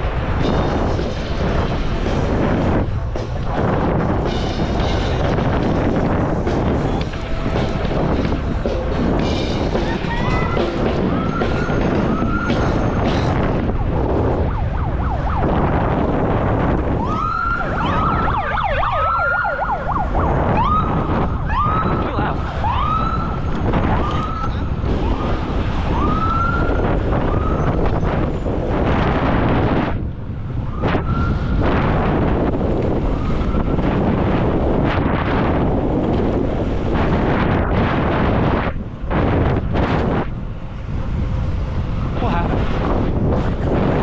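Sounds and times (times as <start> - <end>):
police siren whooping: 9.8 - 12.9, 13.6 - 28.3, 30.6 - 31.6, 32.9 - 34.8.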